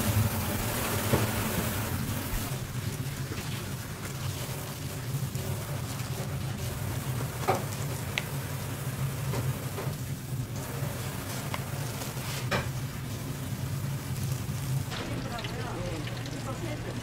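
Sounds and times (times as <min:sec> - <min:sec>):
sizzling hiss: 0:00.0 - 0:17.0.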